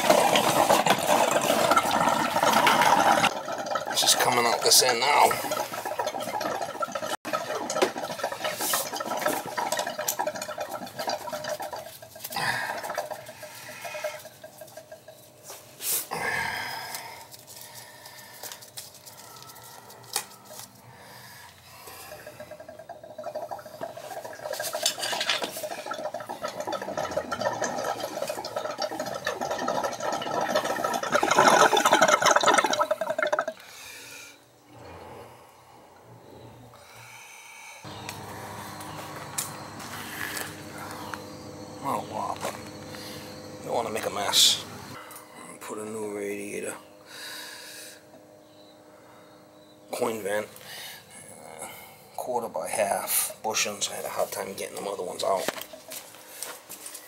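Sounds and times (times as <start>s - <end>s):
water rushing into hose: 0.0s - 14.7s, 22.1s - 33.6s.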